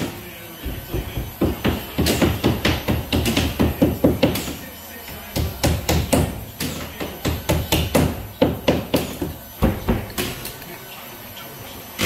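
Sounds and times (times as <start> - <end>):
hammer driving nails: 0.6 - 4.6.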